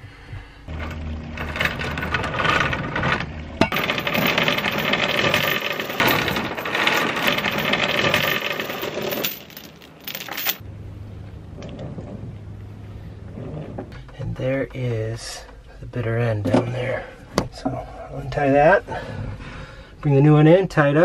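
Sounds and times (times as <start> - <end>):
anchor chain rattling: 0.8 - 10.6
sharp chain clank: 3.6 - 10.6.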